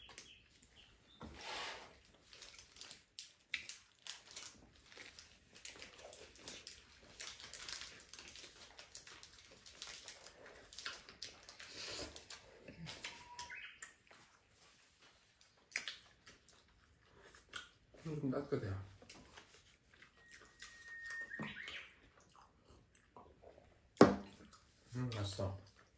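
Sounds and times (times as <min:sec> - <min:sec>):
people chewing food: 0:00.0 - 0:25.9
paper wrappers crinkling: 0:02.0 - 0:13.5.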